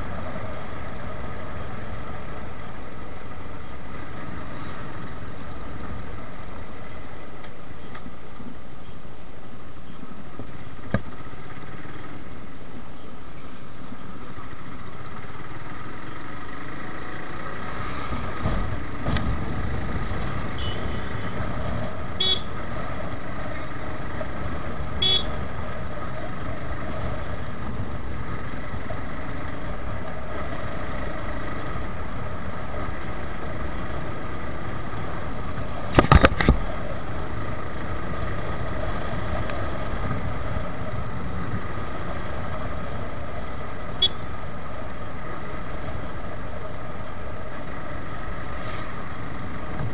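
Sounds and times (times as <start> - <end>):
road noise: 0.0 - 49.9
motorcycle engine running: 10.4 - 49.9
horn toots: 20.5 - 21.4, 22.2 - 22.6, 25.0 - 25.4, 44.0 - 44.3.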